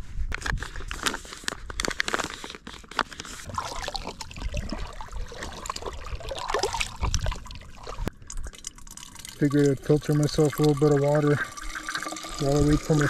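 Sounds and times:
foil pouch crinkling: 0.2 - 4.6
water trickling and gurgling: 3.5 - 13.0.

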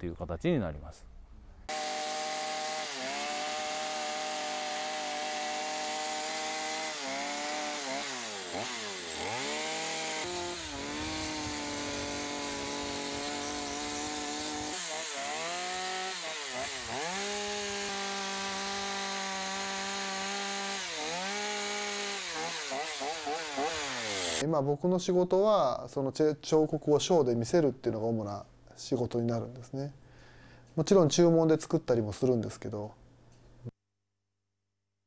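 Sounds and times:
chainsaw cutting wood: 1.7 - 24.4.

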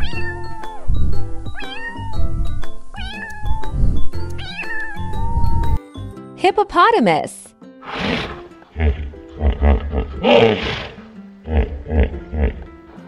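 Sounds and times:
cat meowing: 0.0 - 0.8, 1.6 - 2.3, 3.0 - 3.7, 4.4 - 5.7
background music: 0.0 - 13.0.

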